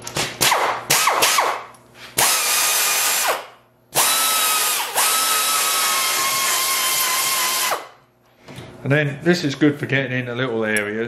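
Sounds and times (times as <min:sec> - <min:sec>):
belt sander whining: 0:04.0 - 0:07.9.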